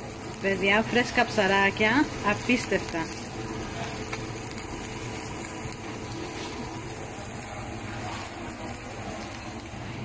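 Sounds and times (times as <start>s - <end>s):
food sizzling on a grill: 0.0s - 10.0s.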